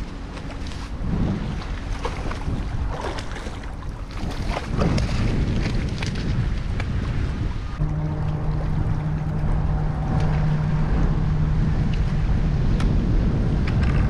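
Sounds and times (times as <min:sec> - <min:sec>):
wind rumbling on microphone: 0:00.0 - 0:14.0
motor humming: 0:07.8 - 0:14.0.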